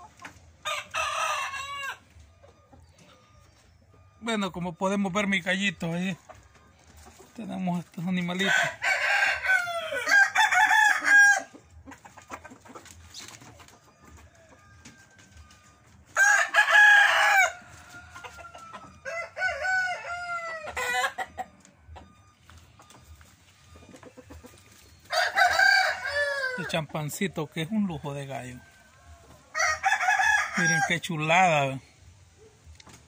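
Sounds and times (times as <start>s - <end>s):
roosters crowing: 0.0s - 3.4s, 8.0s - 11.8s, 13.0s - 22.3s, 23.8s - 31.8s.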